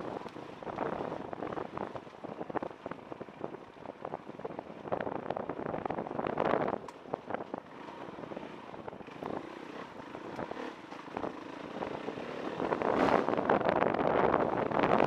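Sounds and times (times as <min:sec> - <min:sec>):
motorcycle engine rumble: 0:00.0 - 0:15.0
stones clicking under tyres: 0:00.1 - 0:03.9, 0:06.7 - 0:07.6, 0:09.0 - 0:11.5
wind buffeting: 0:08.8 - 0:15.0.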